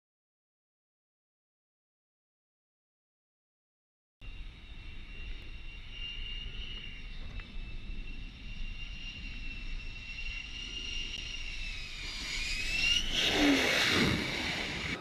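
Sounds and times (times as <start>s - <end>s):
jet engine whining and roaring: 4.2s - 15.0s.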